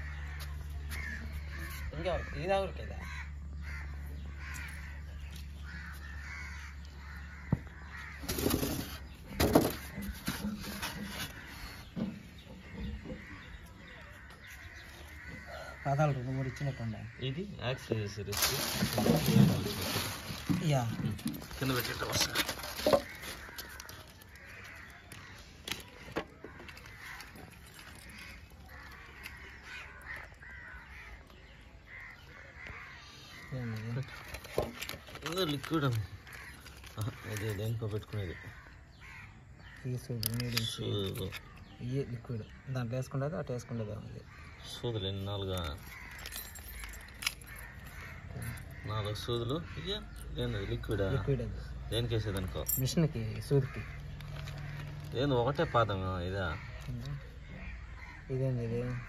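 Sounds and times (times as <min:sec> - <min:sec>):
crows cawing: 0:00.0 - 0:59.0
handling noise rustling: 0:18.0 - 0:30.9, 0:45.6 - 0:49.3.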